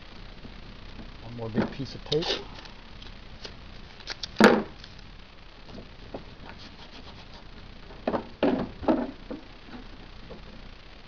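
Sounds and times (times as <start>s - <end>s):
masking tape tearing off roll: 2.0s - 5.0s
tape rubbing on plastic: 2.1s - 5.0s, 5.7s - 7.6s.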